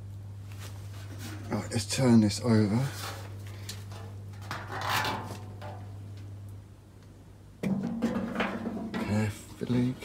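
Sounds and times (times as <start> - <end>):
steady low hum: 0.0 - 10.0
scraping rustle: 0.5 - 2.0, 2.7 - 6.0
metal panel knocking on wood: 7.6 - 9.2.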